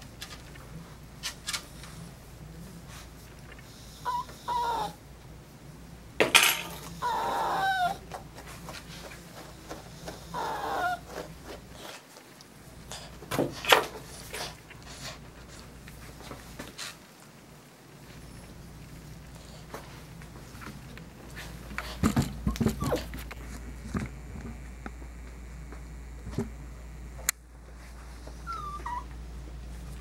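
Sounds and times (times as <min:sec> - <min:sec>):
dog whining: 0:03.9 - 0:05.0, 0:06.6 - 0:08.2, 0:10.1 - 0:11.3, 0:22.4 - 0:23.2, 0:28.4 - 0:29.2
grooming tools clattering: 0:06.2 - 0:07.0.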